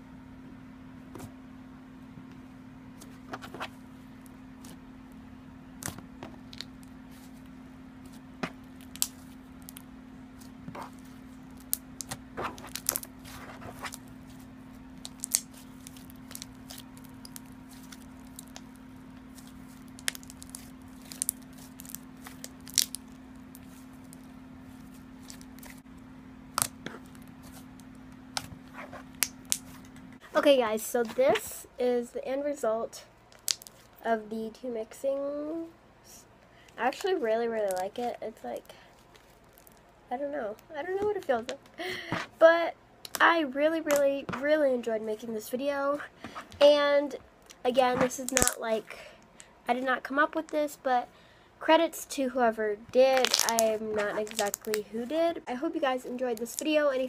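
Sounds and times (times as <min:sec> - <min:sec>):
low hum: 0:00.0 - 0:49.8
slime squishing with clicks: 0:05.8 - 0:14.2, 0:14.9 - 0:25.8, 0:26.5 - 0:28.5, 0:33.3 - 0:33.9, 0:43.0 - 0:43.2, 0:43.9 - 0:44.1, 0:47.4 - 0:49.5, 0:53.0 - 0:54.8.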